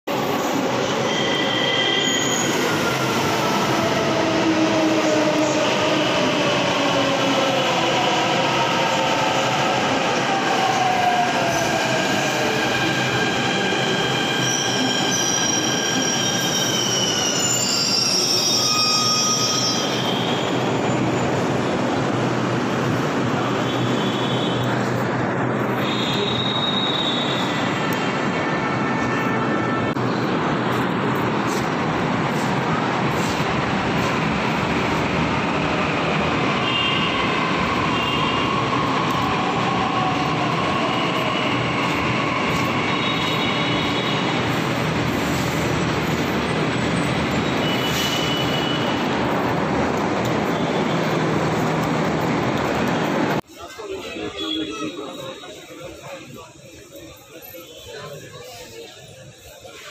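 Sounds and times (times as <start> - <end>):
wheel and brake squeals: 0.9 - 2.9, 13.9 - 21.3, 47.0 - 49.0
train wheels rumbling on rails: 29.9 - 53.8.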